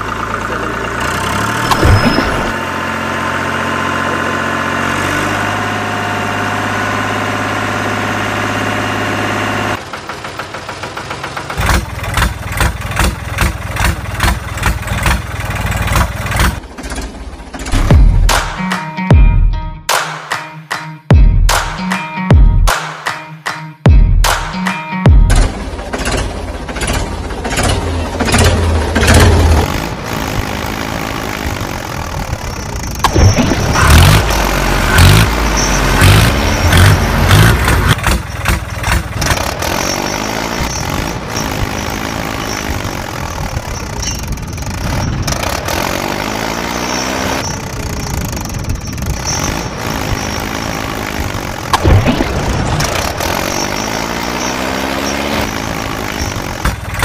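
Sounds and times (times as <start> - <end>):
tractor engine revving: 0.0 - 18.6, 25.3 - 57.0.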